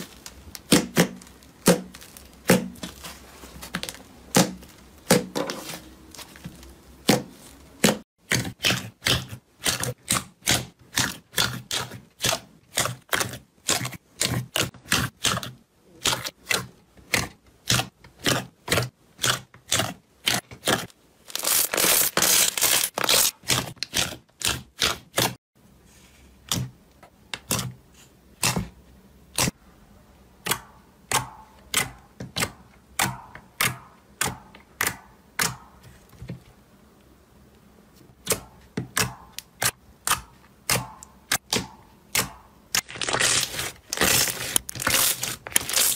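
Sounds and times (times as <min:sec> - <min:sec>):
slime crackling squishing: 0:00.0 - 0:25.4, 0:38.9 - 0:45.9.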